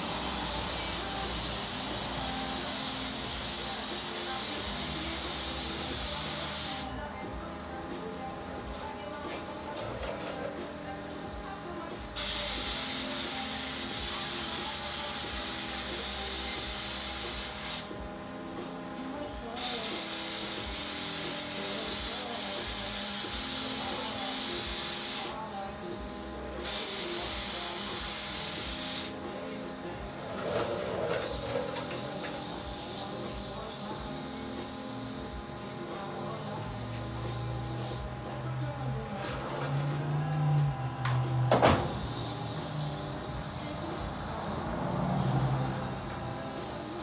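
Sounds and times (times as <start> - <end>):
spray gun hissing: 0.0 - 7.0, 12.2 - 17.9, 19.6 - 38.1, 41.6 - 47.0.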